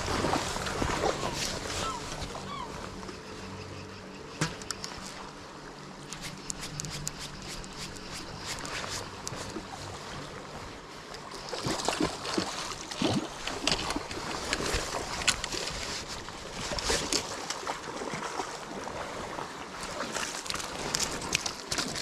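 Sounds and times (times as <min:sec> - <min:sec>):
river noise: 0:00.0 - 0:22.0
wind: 0:00.0 - 0:22.0
fish splashing in water: 0:11.4 - 0:15.9.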